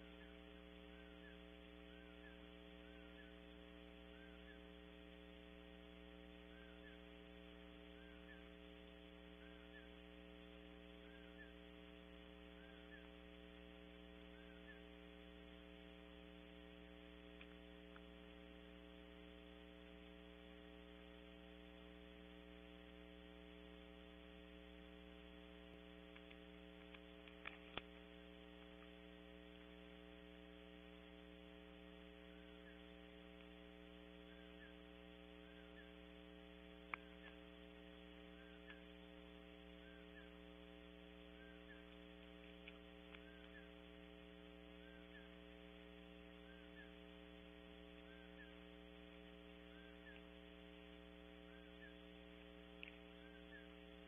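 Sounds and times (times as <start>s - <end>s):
electrical mains hum: 0.0s - 54.0s
faint clicks: 17.2s - 18.3s, 25.3s - 30.2s, 32.5s - 33.9s, 36.6s - 54.0s.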